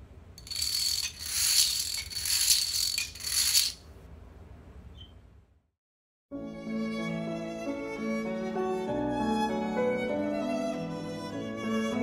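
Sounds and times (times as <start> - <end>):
dominoes toppling: 0.4 - 3.8.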